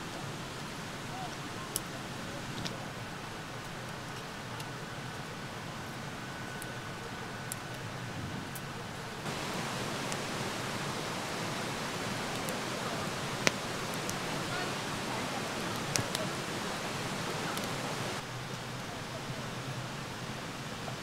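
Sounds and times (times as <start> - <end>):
fire crackling pops: 9.2 - 18.2
fire hissing: 9.2 - 18.2.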